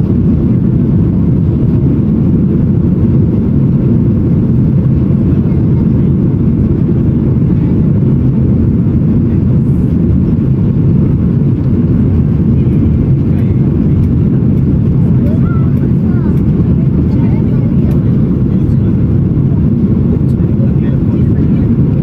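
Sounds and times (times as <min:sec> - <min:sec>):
airplane cabin engine noise: 0:00.0 - 0:22.0.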